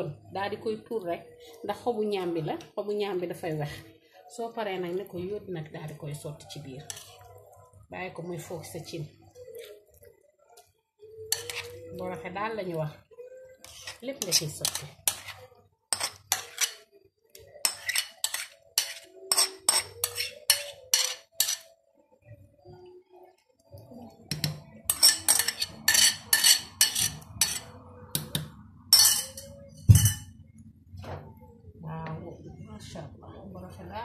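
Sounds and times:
utensil clinking on plate and pot: 0:11.3 - 0:11.9, 0:13.6 - 0:16.9, 0:17.6 - 0:21.7, 0:24.3 - 0:30.3.

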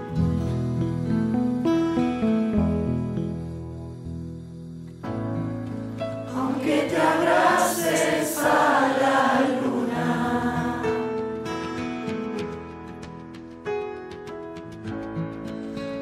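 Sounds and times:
instrumental music: 0:00.0 - 0:16.0
women singing together: 0:06.3 - 0:11.2.

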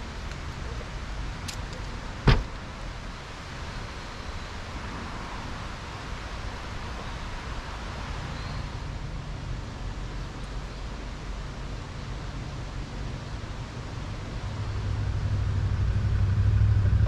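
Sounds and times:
van door shutting: 0:02.2 - 0:02.6
low outdoor rumble: 0:04.7 - 0:17.0.

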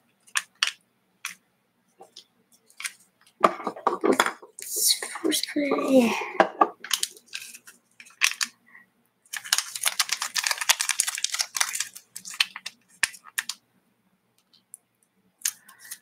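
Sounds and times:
packet crinkling and tearing: 0:06.8 - 0:08.6, 0:09.3 - 0:13.6.

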